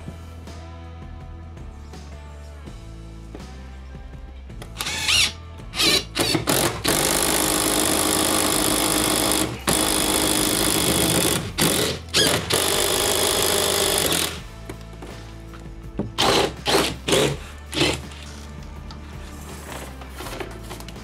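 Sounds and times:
impact driver driving screw into wood: 0:04.8 - 0:14.4, 0:16.2 - 0:18.2.

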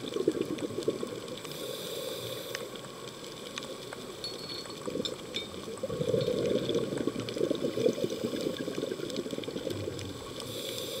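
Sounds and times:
underwater bubbles gurgling: 0:00.0 - 0:11.0
faint clicks: 0:02.2 - 0:10.9.

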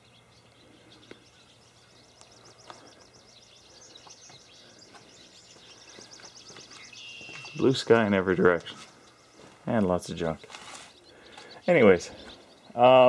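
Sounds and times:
bird singing high notes: 0:03.0 - 0:09.4.

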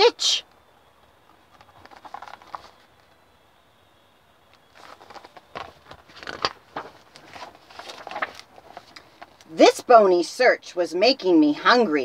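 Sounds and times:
paper rustles and knocks: 0:01.5 - 0:03.2, 0:04.7 - 0:09.4.

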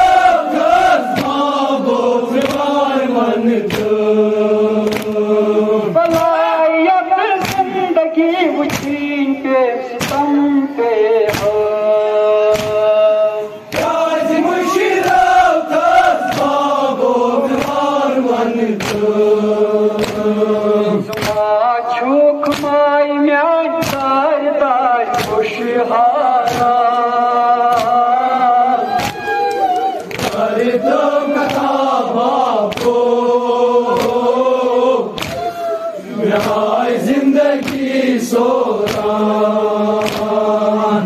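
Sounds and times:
men chanting a lament: 0:00.0 - 0:41.0
hands slapping on chests: 0:00.1 - 0:06.4, 0:07.4 - 0:07.8, 0:08.6 - 0:09.1, 0:10.0 - 0:10.3, 0:11.2 - 0:11.8, 0:12.4 - 0:13.0, 0:13.6 - 0:14.4, 0:15.0 - 0:20.4, 0:21.0 - 0:21.6, 0:22.4 - 0:22.8, 0:23.8 - 0:24.2, 0:25.1 - 0:25.6, 0:26.4 - 0:27.0, 0:27.6 - 0:28.1, 0:28.8 - 0:40.7.

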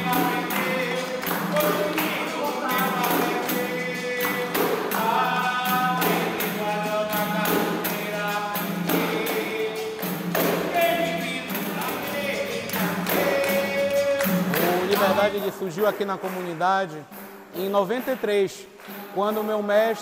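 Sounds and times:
group singing: 0:00.0 - 0:15.4
hand claps: 0:00.0 - 0:20.0
pandeiro: 0:00.0 - 0:20.0.

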